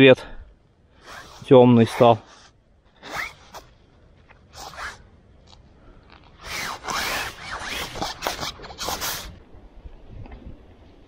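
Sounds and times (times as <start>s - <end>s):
rustling rasping swishes: 1.0s - 3.8s, 4.4s - 5.0s, 6.4s - 9.4s.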